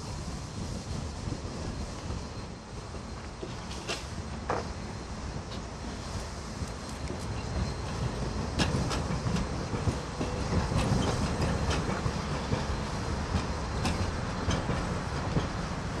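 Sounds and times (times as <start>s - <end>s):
tram rumbling: 0.0s - 16.0s
wheels clacking over rail joints: 6.6s - 16.0s.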